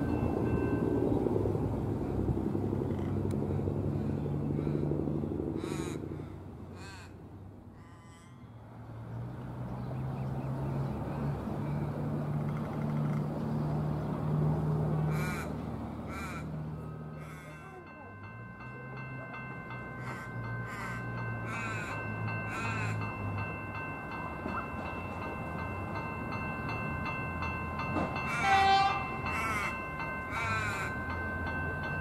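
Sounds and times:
crow cawing: 0:05.6 - 0:07.2, 0:07.8 - 0:08.5, 0:15.1 - 0:16.5, 0:17.2 - 0:17.6, 0:20.0 - 0:23.0.

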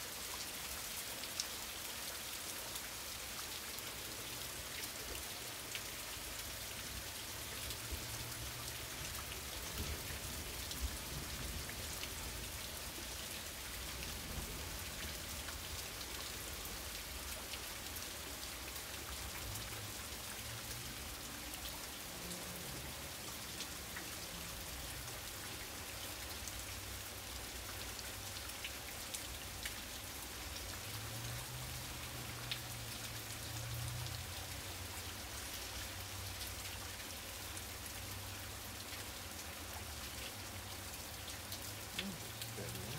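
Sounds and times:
heavy rain falling: 0:00.0 - 0:42.9.

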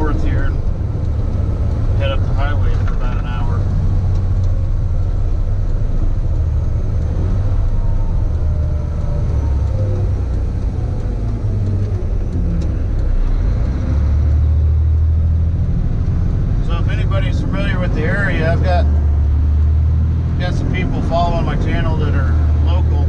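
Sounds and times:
road noise: 0:00.0 - 0:23.0
truck engine drone: 0:00.0 - 0:23.0.

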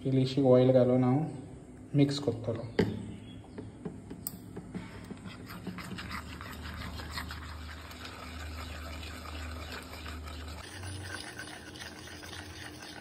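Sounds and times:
spoon scraping paste in bowl: 0:05.1 - 0:13.0.

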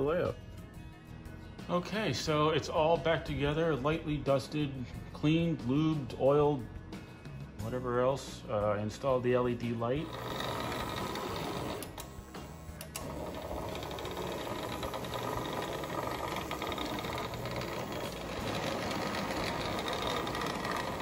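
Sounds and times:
model train motor whirring: 0:10.0 - 0:21.0.

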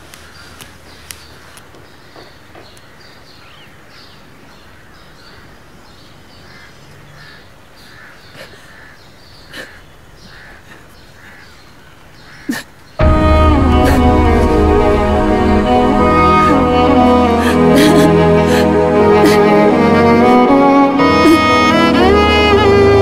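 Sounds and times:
crows cawing: 0:06.4 - 0:12.6
sad string music with violin: 0:13.0 - 0:23.0.

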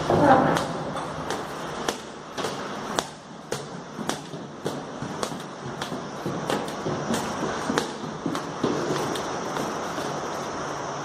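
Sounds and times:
footsteps on stone stairs: 0:03.5 - 0:10.7.

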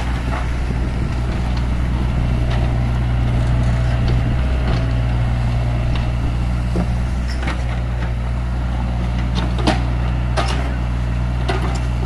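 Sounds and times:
excavator diesel engine running: 0:00.0 - 0:12.0.

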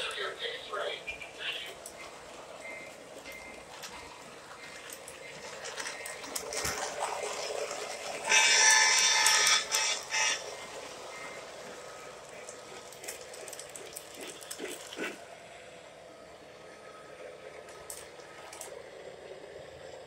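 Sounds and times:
model train rumbling on track: 0:00.0 - 0:12.9
model train horn: 0:08.3 - 0:10.6.

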